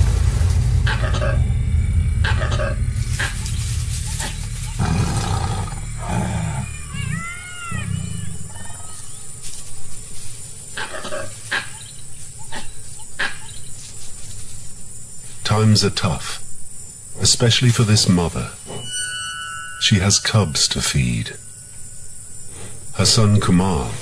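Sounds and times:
cracks and thuds in undergrowth: 2.9s - 5.4s, 8.9s - 14.9s
tiger growling and snarling: 4.2s - 7.2s.

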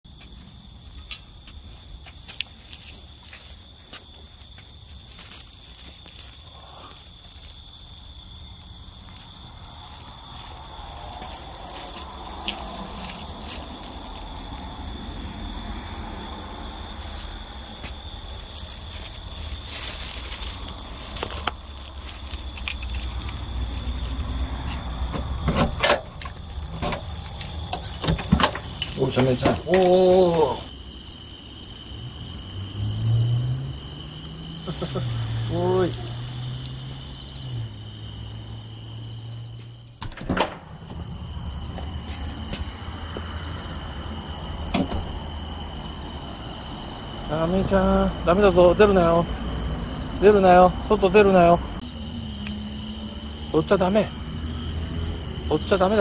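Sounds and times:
crickets chirping: 0.0s - 56.0s
door handle clicks: 40.0s - 40.7s.

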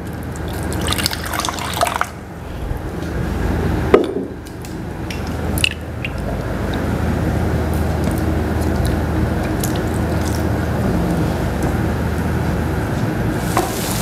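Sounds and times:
water pouring into glass jar: 0.5s - 2.2s
paste sizzling in wok: 13.4s - 14.0s.

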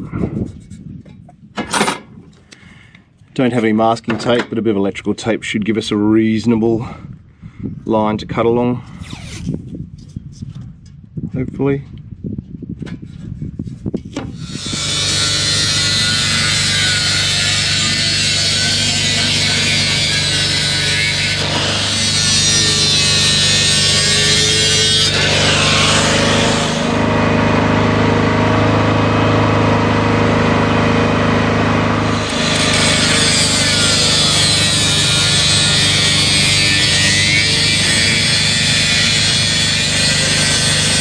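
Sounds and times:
angle grinder cutting metal: 14.4s - 41.0s.

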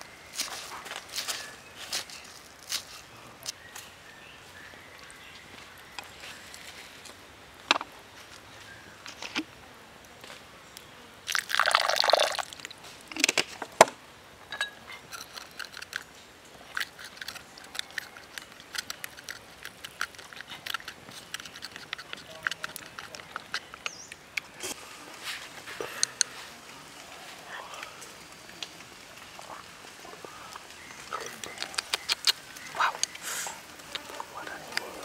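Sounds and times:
liquid pouring into mortar: 11.3s - 12.7s
chopsticks clicking against stone: 16.8s - 24.5s, 31.2s - 33.2s.

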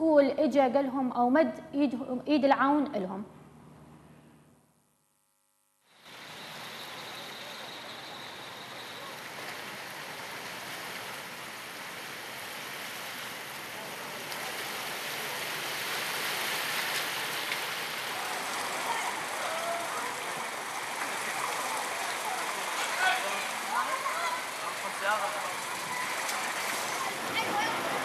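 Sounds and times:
tyres splashing through floodwater: 6.0s - 28.0s
traffic: 6.1s - 28.0s.

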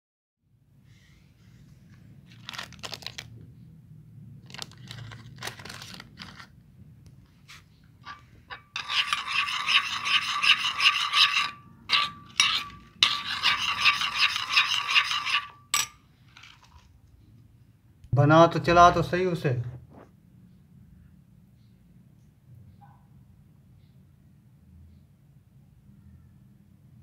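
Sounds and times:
metal spoon scraping ceramic bowl: 8.0s - 16.8s.

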